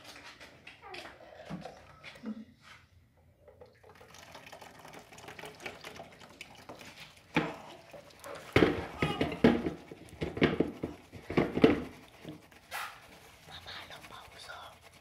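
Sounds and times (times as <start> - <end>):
juice dripping through a sieve: 3.2 - 15.0
rustling: 7.6 - 15.0.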